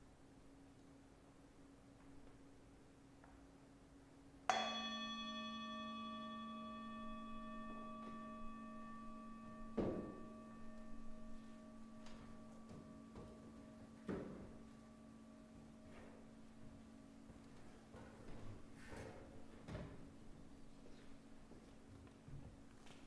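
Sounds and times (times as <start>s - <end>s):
singing bowl ringing: 4.5s - 17.9s.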